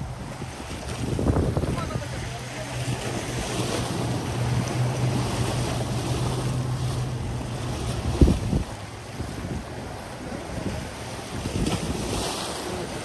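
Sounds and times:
waves on rocky shoreline: 0.0s - 13.0s
wind buffeting microphone: 0.0s - 13.0s.

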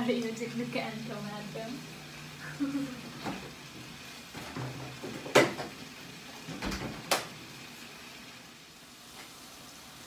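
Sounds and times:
sharp knocks of kitchen items: 4.4s - 5.8s.

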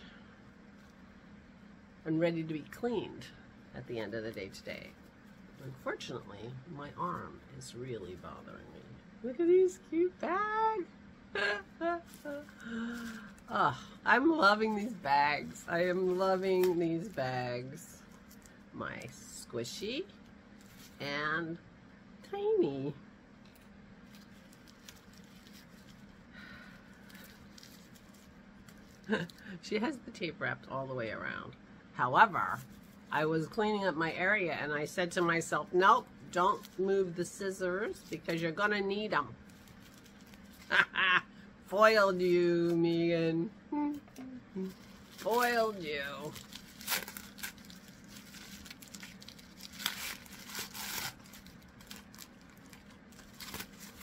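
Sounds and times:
wrapped gift rustling: 11.8s - 19.5s, 20.5s - 21.1s, 24.0s - 29.5s, 39.4s - 41.0s, 44.6s - 54.0s.

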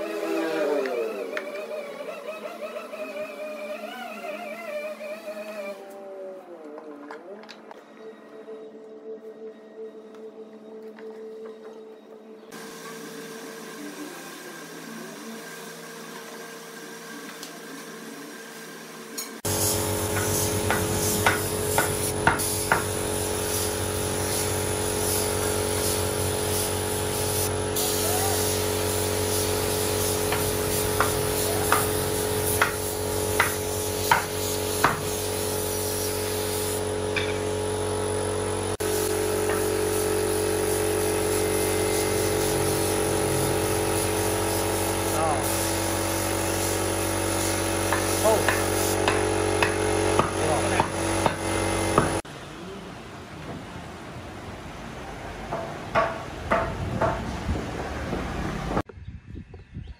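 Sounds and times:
air compressor humming: 12.5s - 52.3s
paint spray gun hissing: 19.4s - 52.2s.

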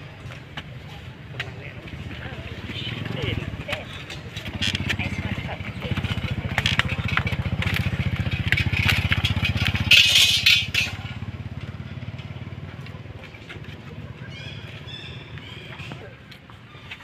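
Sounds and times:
rasping rustle: 1.9s - 11.3s
small engine throbbing: 4.4s - 15.6s.

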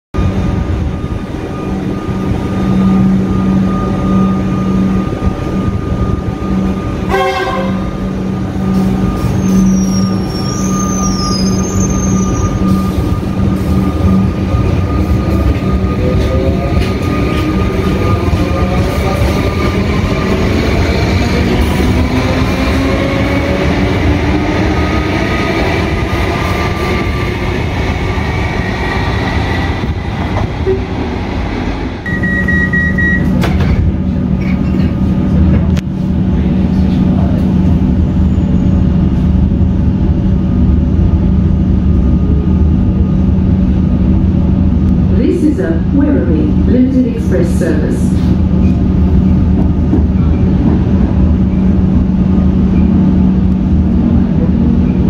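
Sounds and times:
rising train whine: 0.1s - 55.0s
train hum: 0.2s - 55.0s
train horn toot: 7.1s - 8.0s.

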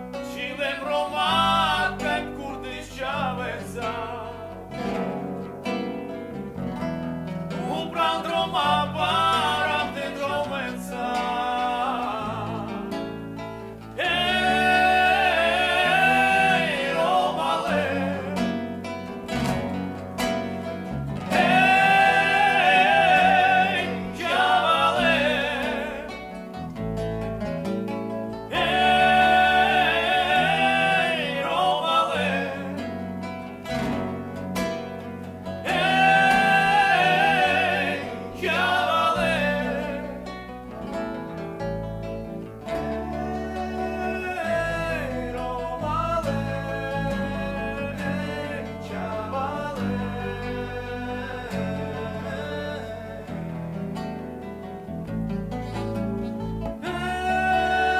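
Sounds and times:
men singing: 0.0s - 5.1s, 7.5s - 19.7s, 20.6s - 26.8s, 28.4s - 34.0s, 35.5s - 41.0s, 42.1s - 54.2s, 56.6s - 57.9s
electric bass: 0.0s - 57.9s
strummed acoustic guitars: 0.0s - 57.9s.

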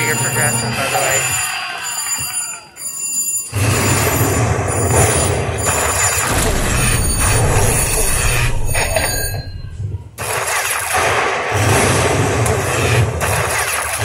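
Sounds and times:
slot machine win sound: 0.0s - 1.4s.

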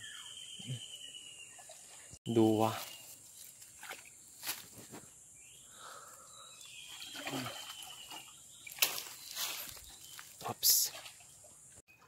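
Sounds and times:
hands splashing in muddy water: 6.9s - 10.3s.

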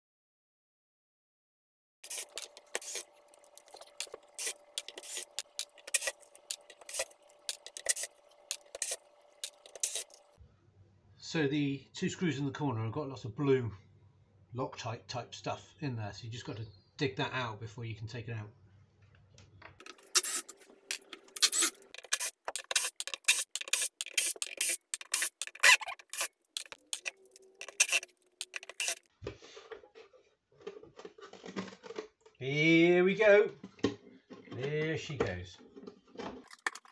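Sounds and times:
metal tools clicking and scraping: 2.0s - 10.2s, 19.8s - 29.0s.

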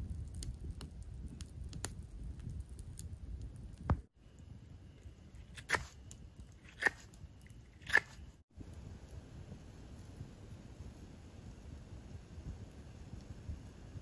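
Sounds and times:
campfire crackling: 0.0s - 14.0s
knife whittling wood: 5.4s - 6.0s, 6.6s - 8.3s.

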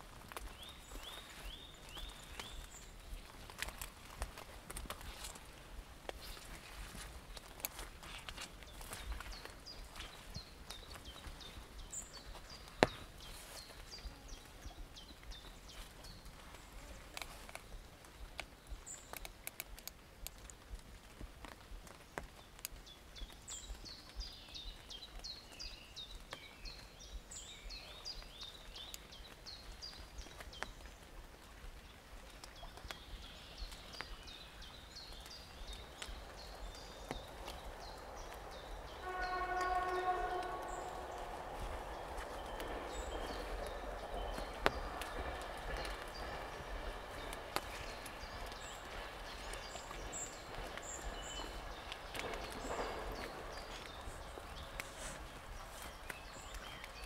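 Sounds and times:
songbirds chirping: 0.0s - 57.0s
steady horn-like tone: 38.9s - 43.0s.

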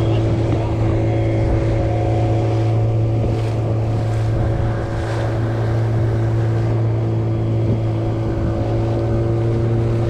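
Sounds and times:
boat engine humming: 0.0s - 10.0s
water noise: 0.0s - 10.0s
wind on microphone: 0.0s - 10.0s.

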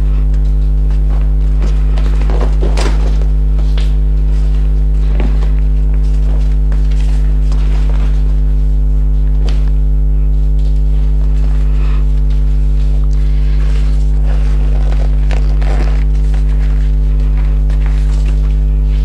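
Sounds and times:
electrical mains hum: 0.0s - 19.0s
fabric rustling and knocks: 12.3s - 19.0s.

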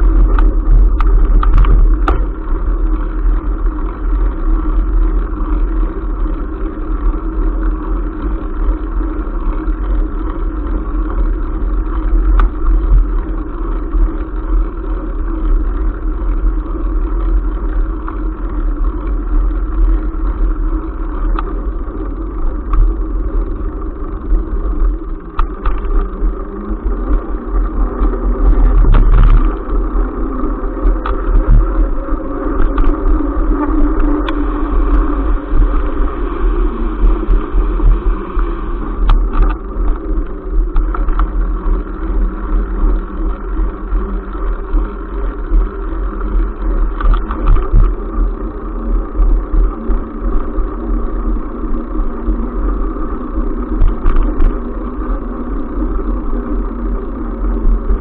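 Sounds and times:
wind and tyre rumble: 0.0s - 58.0s
bike knocking over bumps: 0.2s - 2.5s.

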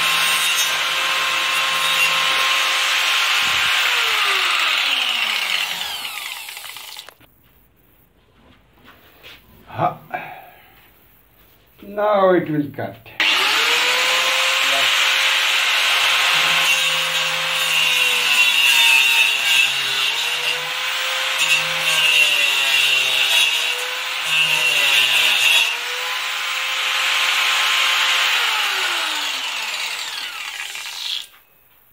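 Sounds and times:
grinder saw cutting wood: 0.0s - 7.2s, 13.2s - 31.4s.

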